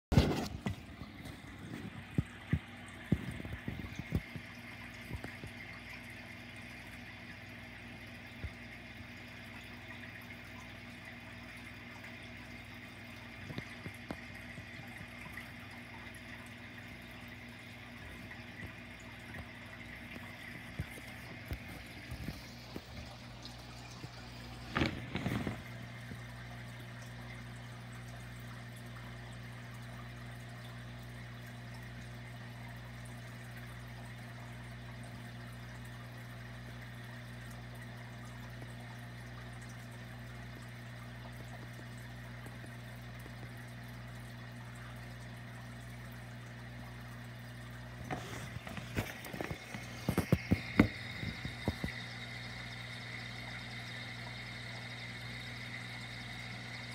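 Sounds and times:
air pump humming: 0:00.1 - 0:29.5, 0:46.3 - 0:56.9
water trickling and bubbling: 0:00.1 - 0:56.9.

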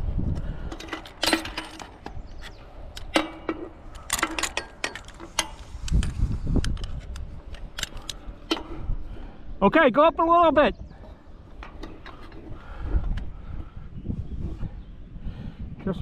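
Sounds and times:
wind rumble on microphone: 0:00.0 - 0:16.0
metal clicks and knocks: 0:00.7 - 0:08.9, 0:11.5 - 0:13.3.

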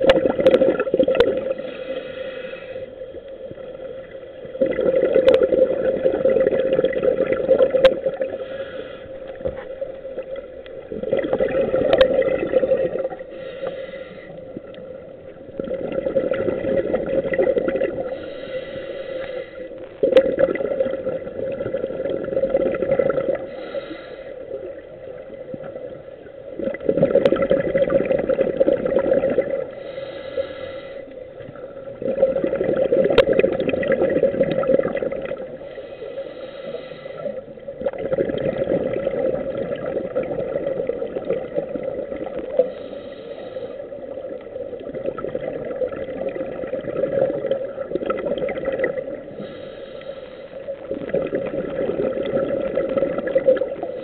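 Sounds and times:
exhaled bubbles gurgling: 0:00.0 - 0:54.0
steady hum: 0:00.0 - 0:54.0
regulator inhale hiss: 0:01.5 - 0:04.6, 0:08.1 - 0:10.8, 0:13.1 - 0:15.1, 0:18.0 - 0:20.0, 0:23.3 - 0:25.4, 0:29.6 - 0:31.7, 0:35.4 - 0:37.6, 0:42.3 - 0:44.4, 0:49.2 - 0:51.0, 0:53.7 - 0:54.0.

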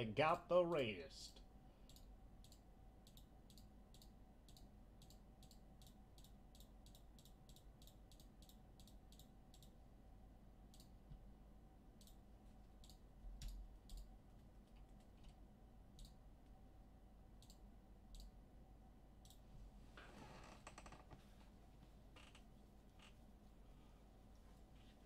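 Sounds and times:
low steady hum: 0:00.0 - 0:25.0
faint clicks: 0:01.9 - 0:09.8.

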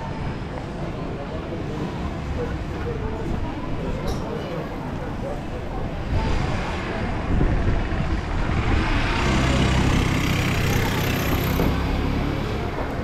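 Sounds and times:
vehicle engine drone: 0:06.0 - 0:13.0.

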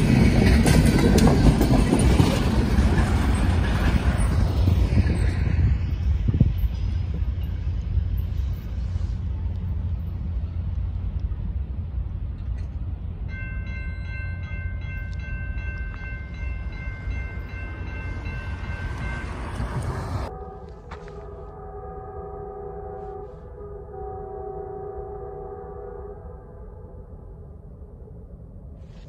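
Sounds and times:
crossing warning bell ringing: 0:00.0 - 0:10.7, 0:12.6 - 0:23.0
freight train rumbling: 0:00.0 - 0:26.4.

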